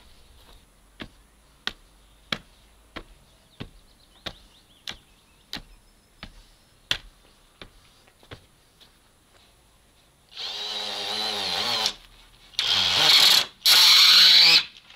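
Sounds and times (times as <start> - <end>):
tamping bar knocking soil: 0.0 - 8.5.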